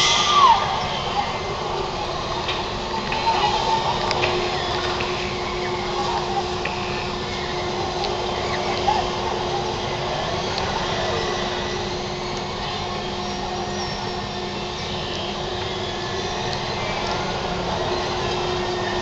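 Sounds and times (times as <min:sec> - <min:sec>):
ride machinery humming and whirring: 0:00.0 - 0:19.0
faint clicks: 0:02.4 - 0:09.6.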